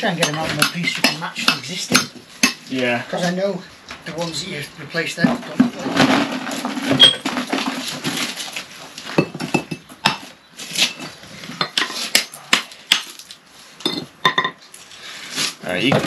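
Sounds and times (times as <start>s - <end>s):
hammer chipping mortar off brick: 0.2s - 2.6s.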